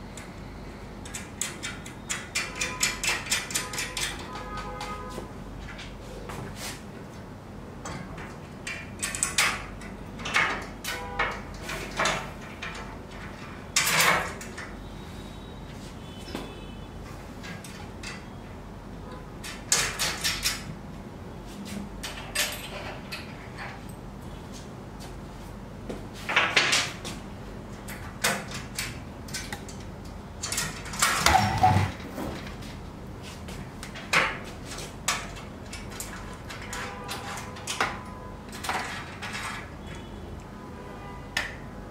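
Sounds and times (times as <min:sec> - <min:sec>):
metal clattering and scraping: 0:30.5 - 0:32.6.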